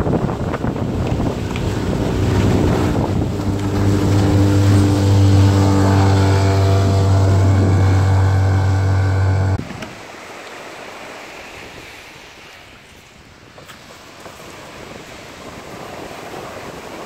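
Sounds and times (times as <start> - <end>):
waves washing onto pebbles: 0.0 - 8.4, 9.6 - 17.0
wind and water rushing: 0.0 - 17.0
outboard motor running: 0.1 - 9.8.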